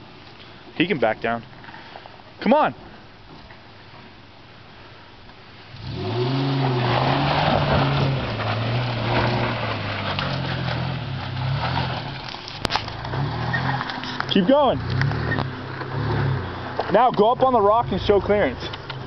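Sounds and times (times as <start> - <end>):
engine pulling under load: 5.7 - 19.0
tyres crunching over rocks: 6.5 - 19.0.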